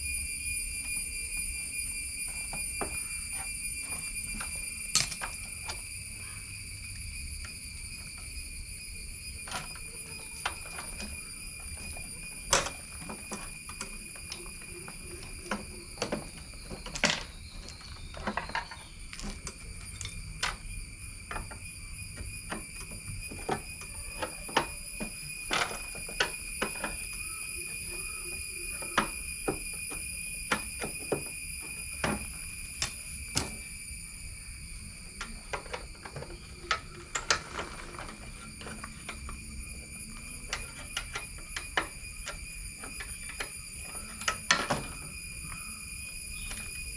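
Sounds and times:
high-pitched insect drone: 0:00.0 - 0:46.9
hand tools clicking and knocking: 0:02.3 - 0:05.8, 0:09.4 - 0:33.7, 0:35.2 - 0:45.6.

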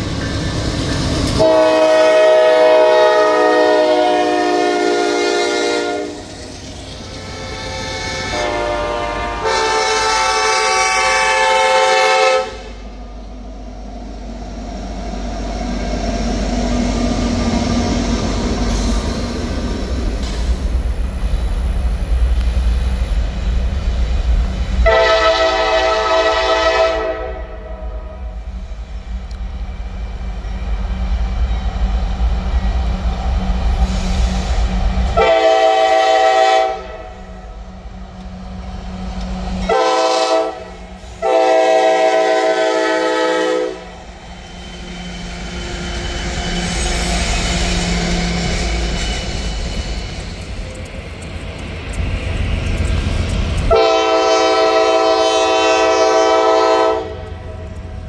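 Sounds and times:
train rumbling past: 0:00.0 - 0:58.0
locomotive air horn: 0:01.4 - 0:06.4, 0:07.2 - 0:12.8, 0:24.8 - 0:28.3, 0:35.2 - 0:37.3, 0:39.6 - 0:43.9, 0:53.7 - 0:57.6.

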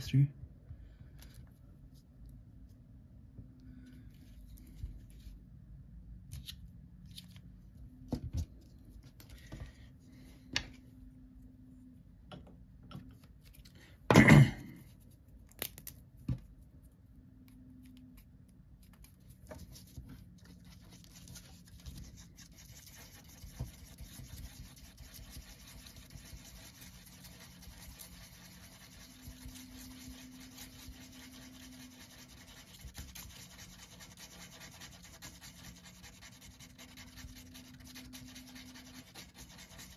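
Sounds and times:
stick scraping across paper: 0:19.5 - 0:39.9.

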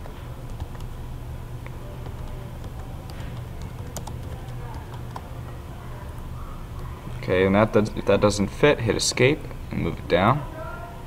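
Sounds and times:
low steady hum: 0:00.0 - 0:11.0
keyboard typing: 0:00.5 - 0:00.9, 0:01.9 - 0:05.4.

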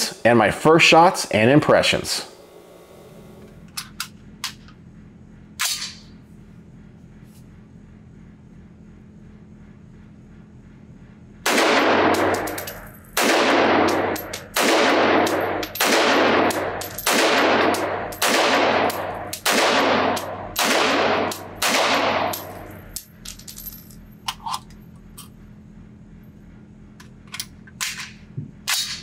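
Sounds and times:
rifle shots echoing indoors: 0:05.6 - 0:06.1, 0:11.4 - 0:23.0.

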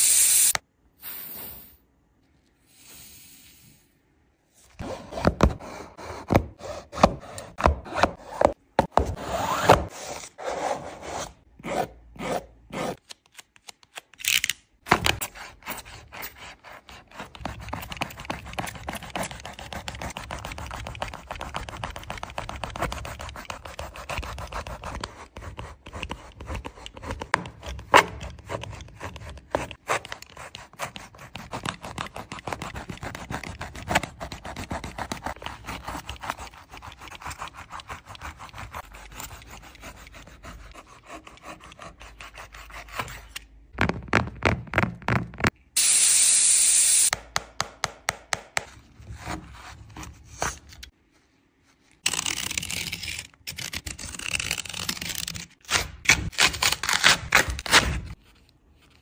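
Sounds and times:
knife cutting and scraping sneaker: 0:04.8 - 0:13.0, 0:15.2 - 0:43.5.

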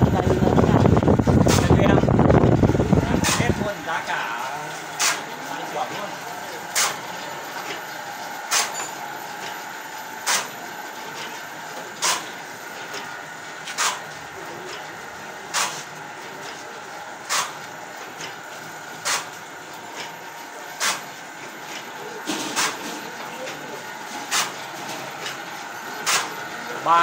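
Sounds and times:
printing machine whirring: 0:00.0 - 0:27.0
sharp machine clack: 0:04.9 - 0:07.8, 0:08.5 - 0:09.6, 0:10.2 - 0:11.4, 0:12.0 - 0:13.1, 0:21.8 - 0:23.0, 0:24.2 - 0:27.0.

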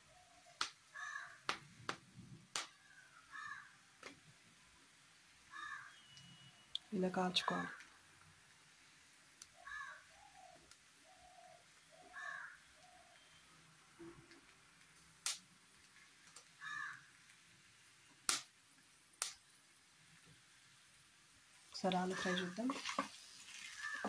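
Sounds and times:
birds calling: 0:02.7 - 0:03.8, 0:05.5 - 0:06.7, 0:09.5 - 0:14.2, 0:16.6 - 0:17.2, 0:23.5 - 0:24.0.

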